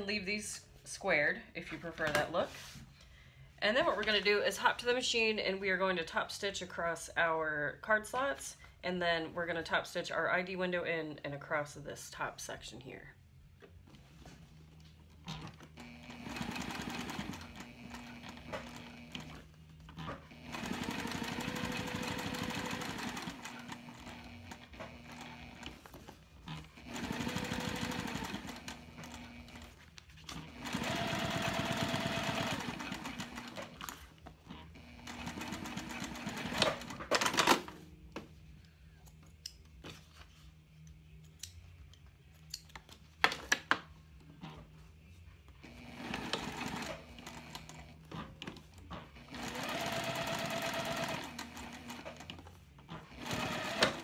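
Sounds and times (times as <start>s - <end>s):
sewing machine motor whine: 15.8s - 19.4s, 20.1s - 25.8s, 26.6s - 29.8s, 30.4s - 33.8s, 34.7s - 36.9s, 49.2s - 52.3s, 53.1s - 54.0s.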